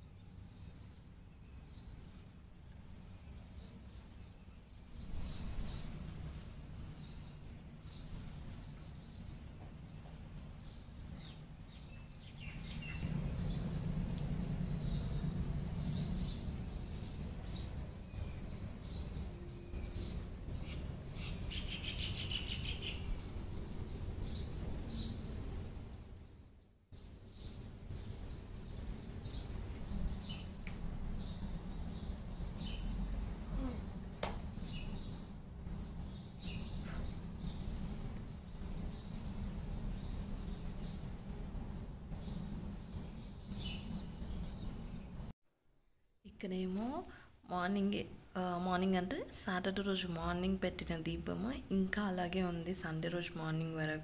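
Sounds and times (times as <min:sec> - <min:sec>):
low background rumble: 0:01.2 - 0:45.4
birds chirping: 0:03.0 - 0:26.6, 0:27.2 - 0:45.3.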